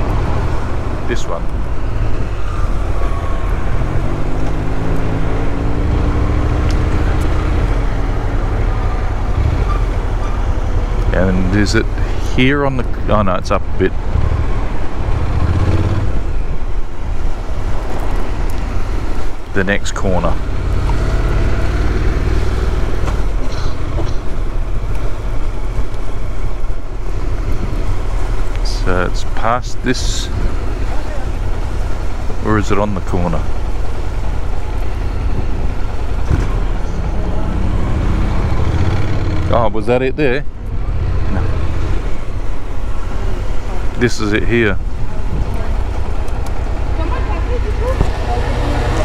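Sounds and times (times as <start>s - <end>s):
wind and road rumble: 0.0s - 49.0s
motorcycle engine accelerating: 3.5s - 11.2s, 14.1s - 16.3s, 20.4s - 25.9s, 33.5s - 40.0s, 45.0s - 49.0s.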